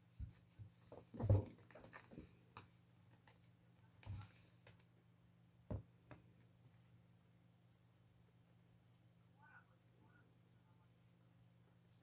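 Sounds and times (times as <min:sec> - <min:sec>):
kittens thumping and scuffling: 0:00.0 - 0:04.8.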